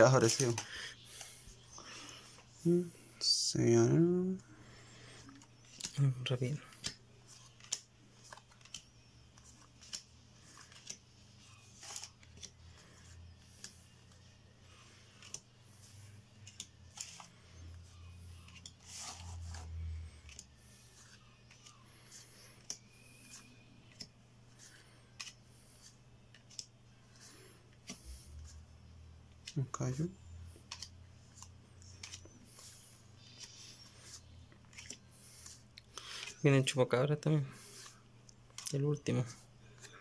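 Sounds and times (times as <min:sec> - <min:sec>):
cards clicking and snapping: 0:05.3 - 0:06.1, 0:06.7 - 0:12.8, 0:15.0 - 0:17.3, 0:20.2 - 0:28.0, 0:30.6 - 0:32.7, 0:33.3 - 0:36.4, 0:37.8 - 0:38.8.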